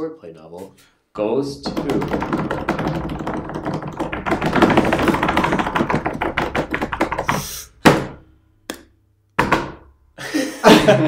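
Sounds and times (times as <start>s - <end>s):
hands drumming on a desk: 1.6s - 9.9s
loud hit on a desk: 1.7s - 7.2s, 7.8s - 8.2s, 9.4s - 9.9s.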